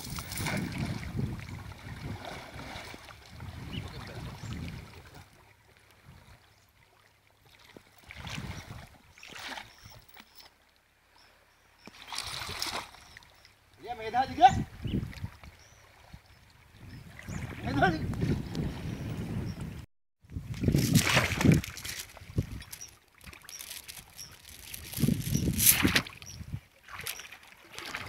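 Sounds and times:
water sloshing and splashing: 0:00.0 - 0:10.7, 0:11.8 - 0:13.8, 0:20.5 - 0:28.0.

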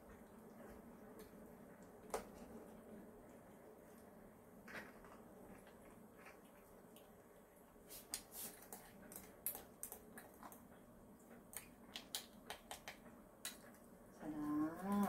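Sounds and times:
clicks and taps at food bowl: 0:11.5 - 0:13.7.

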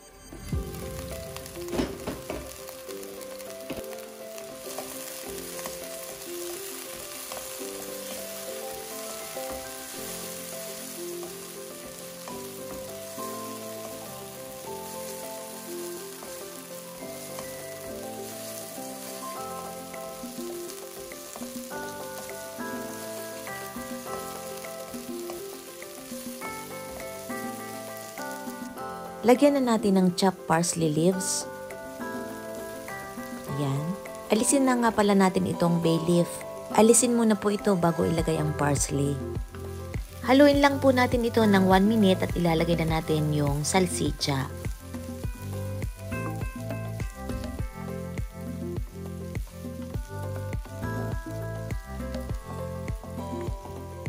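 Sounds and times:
soft melody of held notes: 0:00.0 - 0:54.0
mushrooms and onion sizzling in oil: 0:00.2 - 0:54.0
wooden spoon stirring: 0:03.4 - 0:28.6.

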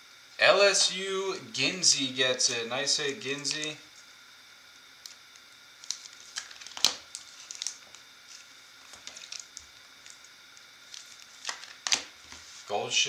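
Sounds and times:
plastic sleeve crinkling: 0:05.0 - 0:12.7.

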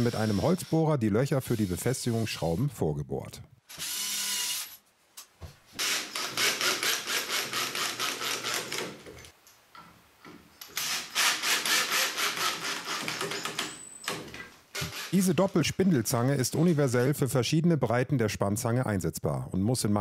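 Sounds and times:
cordless drill boring into wood: 0:00.0 - 0:00.8, 0:03.7 - 0:04.8, 0:05.8 - 0:09.0, 0:10.8 - 0:13.7, 0:14.8 - 0:15.2.

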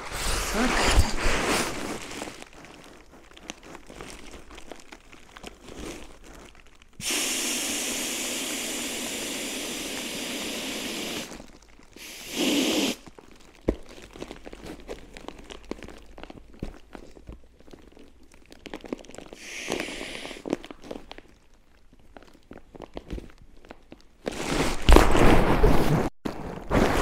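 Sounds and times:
fabric crinkling: 0:00.0 - 0:07.0, 0:13.0 - 0:27.0
air hissing from a valve: 0:07.0 - 0:11.3, 0:12.0 - 0:13.0, 0:19.4 - 0:20.5.

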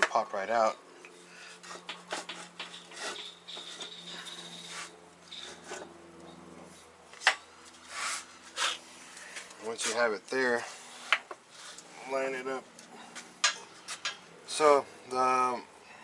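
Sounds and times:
metal and wood scraping: 0:00.0 - 0:11.9.

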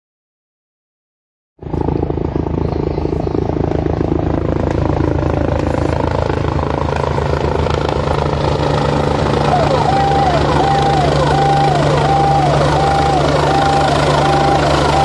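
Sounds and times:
helicopter rotor chopping: 0:01.6 - 0:15.0
low engine drone: 0:01.6 - 0:15.0.

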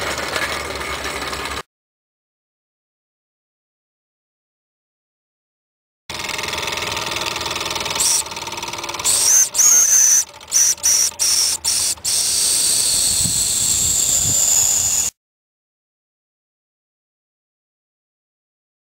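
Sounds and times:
high steam whistle: 0:09.0 - 0:15.1
steam hissing: 0:09.0 - 0:15.1.

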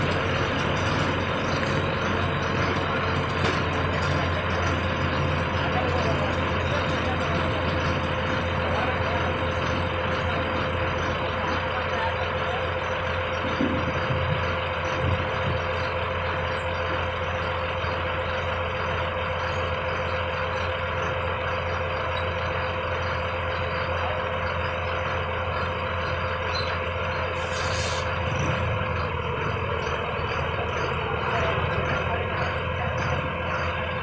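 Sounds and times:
diesel engine idling: 0:00.0 - 0:34.0
short hiss: 0:27.4 - 0:28.1.

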